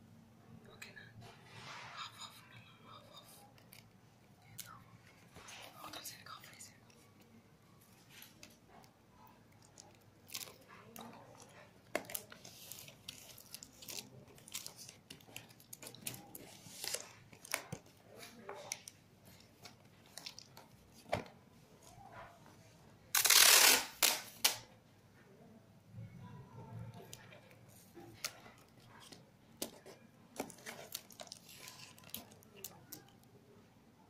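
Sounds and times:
plastic foil tape crinkling: 23.1 - 24.6, 30.4 - 33.2
tape ripping: 23.1 - 24.6.

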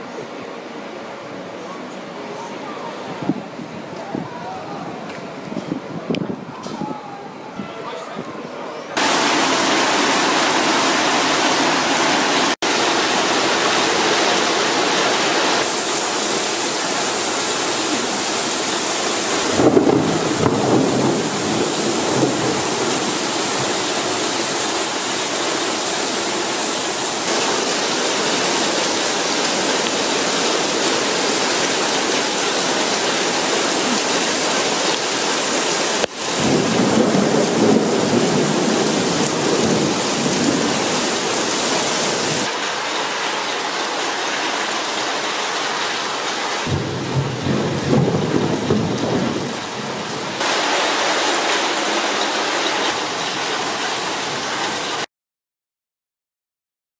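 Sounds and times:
rain downpour: 9.0 - 55.1
thunder rumbling: 17.6 - 25.1, 36.2 - 42.5, 46.7 - 51.5.

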